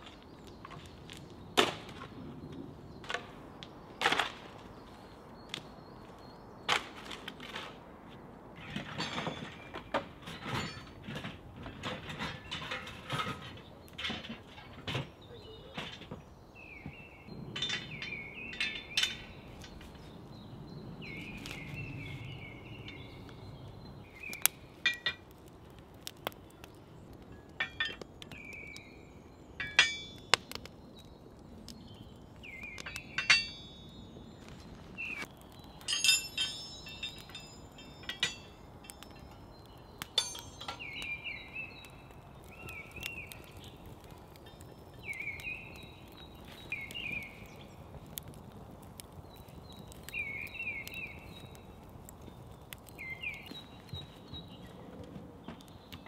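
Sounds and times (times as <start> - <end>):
bird chirping: 14.6 - 25.1, 26.2 - 48.2, 49.0 - 56.0
metal hooks clinking: 35.9 - 39.0, 40.2 - 40.9.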